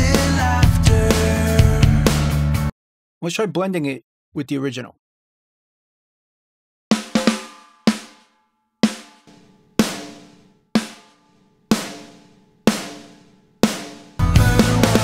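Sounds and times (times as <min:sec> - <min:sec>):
snare drum hits: 0:06.9 - 0:15.0.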